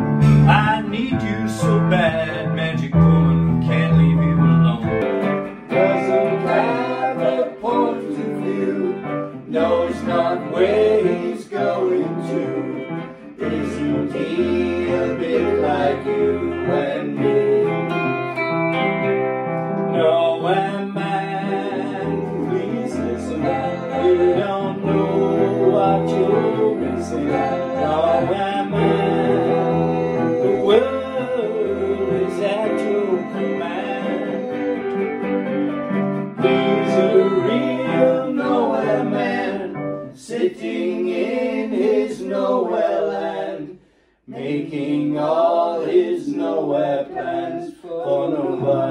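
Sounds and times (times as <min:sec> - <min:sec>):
acoustic guitar: 0:00.0 - 0:40.2
keyboard: 0:00.0 - 0:43.7
man singing: 0:00.3 - 0:05.0, 0:20.0 - 0:35.3, 0:36.4 - 0:40.5, 0:44.3 - 0:48.9.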